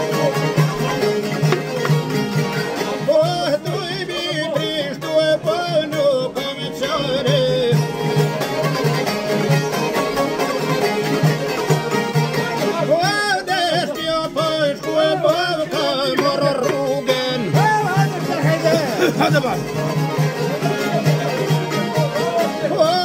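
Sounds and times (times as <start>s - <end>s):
plucked long-necked lute: 0.0s - 23.0s
man singing: 2.8s - 8.8s, 12.3s - 19.9s, 20.6s - 23.0s.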